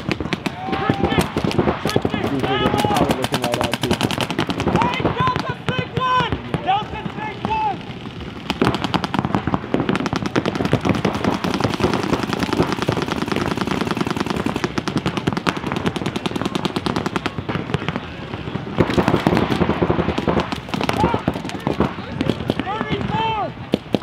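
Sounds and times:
paintball markers firing: 0:00.0 - 0:06.4, 0:07.4 - 0:17.5.

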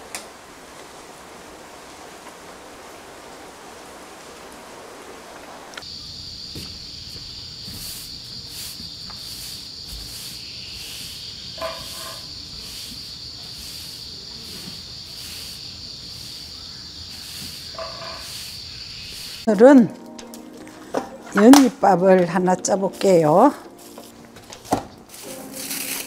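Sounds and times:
cicadas droning: 0:00.0 - 0:26.0
broom swishing across ground: 0:07.1 - 0:19.5, 0:22.8 - 0:26.0.

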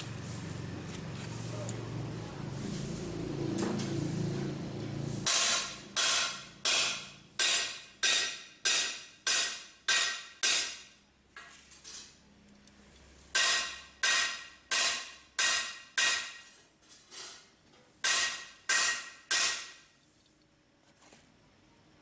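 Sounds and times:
metal struck with ringing hits: 0:05.3 - 0:11.0, 0:13.4 - 0:16.4, 0:18.0 - 0:19.8.

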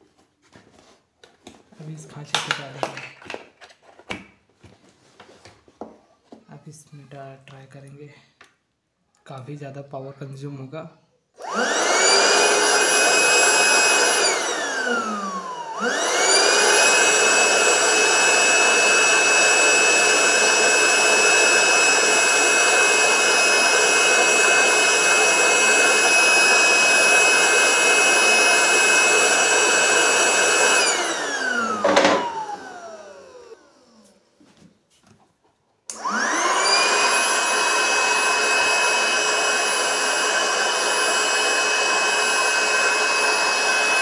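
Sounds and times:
electric air pump motor whining: 0:11.4 - 0:34.2, 0:35.9 - 0:44.0.

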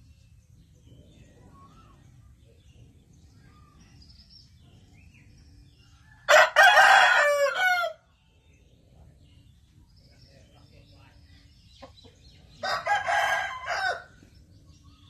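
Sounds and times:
rooster crowing: 0:06.2 - 0:08.0, 0:12.6 - 0:14.2.

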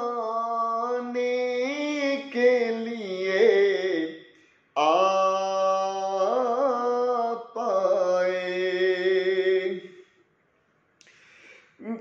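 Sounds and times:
man singing unaccompanied: 0:00.0 - 0:09.9.

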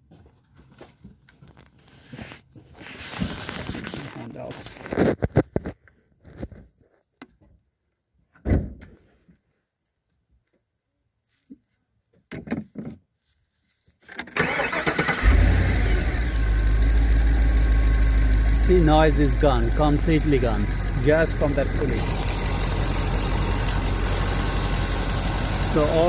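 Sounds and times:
car engine starting and idling: 0:14.2 - 0:26.0.

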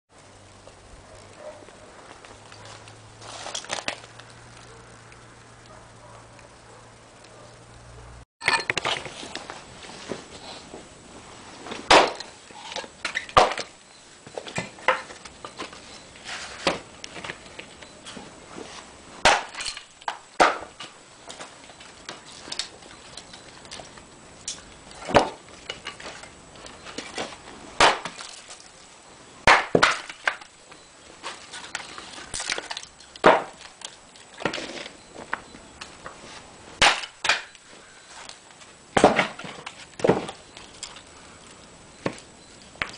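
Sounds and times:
axe chopping firewood: 0:11.8 - 0:13.8, 0:19.2 - 0:22.7, 0:24.5 - 0:26.1, 0:27.8 - 0:28.5, 0:29.4 - 0:30.5, 0:31.7 - 0:34.9, 0:36.8 - 0:37.6, 0:39.0 - 0:40.4.

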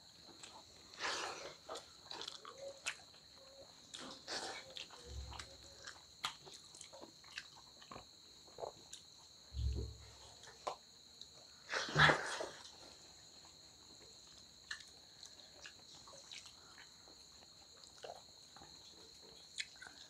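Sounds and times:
high insect trill: 0:00.0 - 0:20.0
mouth chewing and smacking: 0:00.1 - 0:11.4, 0:12.3 - 0:20.0
dull low bump: 0:09.6 - 0:10.1.

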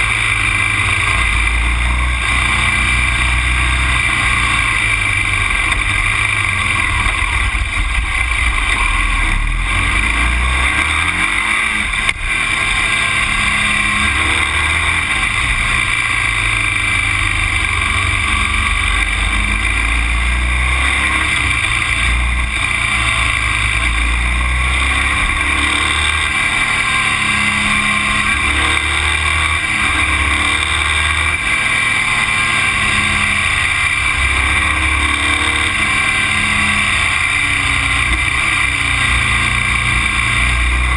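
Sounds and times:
low rumble: 0:00.0 - 0:10.8.

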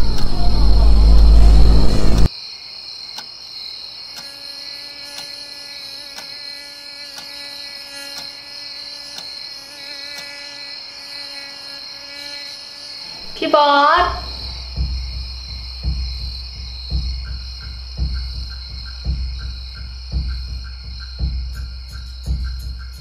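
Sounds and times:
loud low rumble: 0:00.0 - 0:02.3, 0:14.1 - 0:16.4
crickets chirring: 0:00.0 - 0:23.0
mosquito whine: 0:02.9 - 0:23.0
faint ticks: 0:03.1 - 0:03.3, 0:04.1 - 0:04.5, 0:05.1 - 0:05.4, 0:06.0 - 0:06.4, 0:07.1 - 0:08.4, 0:09.1 - 0:09.4, 0:10.1 - 0:10.4.

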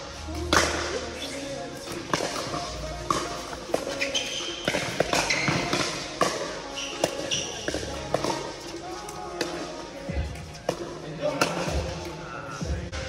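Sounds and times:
shoe squeaks: 0:02.4 - 0:09.4.

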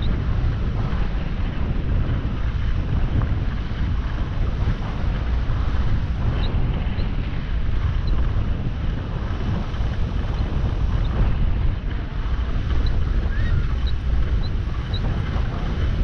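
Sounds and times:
wind rushing over microphone: 0:00.0 - 0:16.0.

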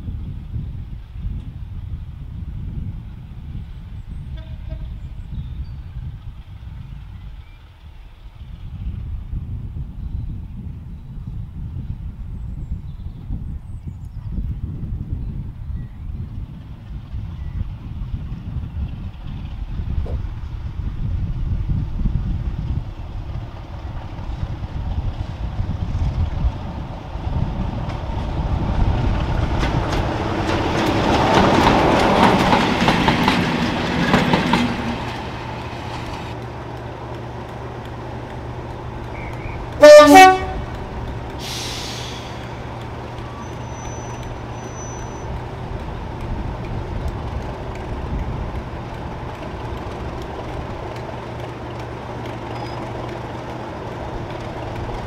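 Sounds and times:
diesel locomotive approaching: 0:00.0 - 0:55.0
locomotive horn blast: 0:04.4 - 0:05.0, 0:39.1 - 0:40.8
diesel locomotive idling: 0:26.6 - 0:55.0.

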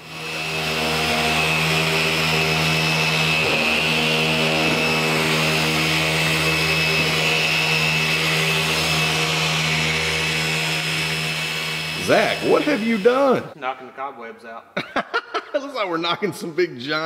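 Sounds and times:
electric polisher motor whine: 0:00.0 - 0:13.6.

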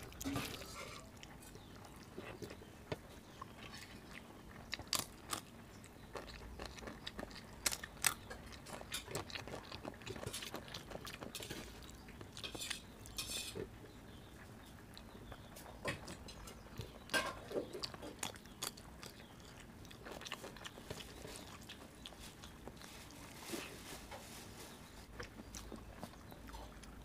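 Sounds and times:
chewing: 0:00.0 - 0:27.0
fingers squishing food: 0:14.4 - 0:23.3.

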